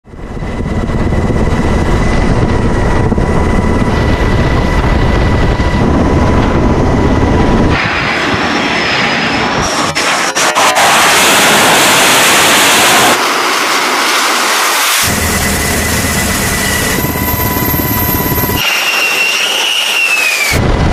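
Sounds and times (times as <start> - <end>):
low rumble: 0.0 - 18.6
jet engine roar: 0.1 - 20.9.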